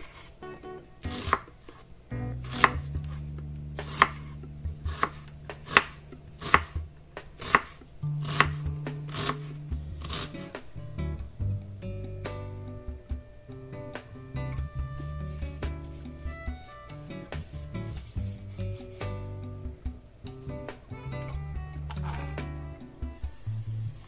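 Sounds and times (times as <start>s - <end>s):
knife chopping on wooden board: 1.1s - 1.8s, 2.4s - 3.2s, 3.8s - 10.4s.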